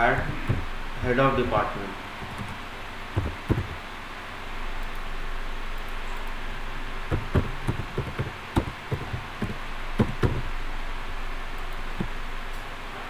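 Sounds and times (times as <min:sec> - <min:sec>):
steady background hiss: 0:00.0 - 0:13.0
keyboard keystrokes: 0:02.2 - 0:02.6, 0:03.2 - 0:03.8, 0:07.1 - 0:10.5.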